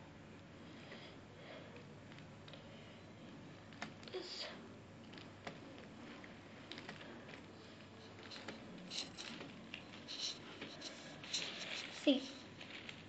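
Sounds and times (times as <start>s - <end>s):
drawing tip scratching on paper: 8.0s - 9.4s, 10.0s - 12.6s.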